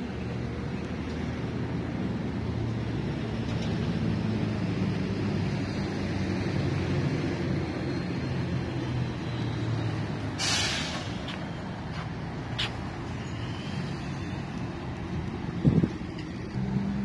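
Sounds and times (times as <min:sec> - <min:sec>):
general traffic noise: 0:00.0 - 0:17.0
vehicle engine humming low: 0:00.0 - 0:17.0
short sharp hiss: 0:10.4 - 0:11.2.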